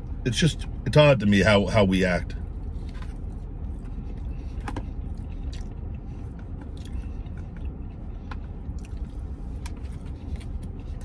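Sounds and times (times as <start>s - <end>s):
low steady rumble: 0.0s - 11.0s
man chewing: 2.6s - 11.0s.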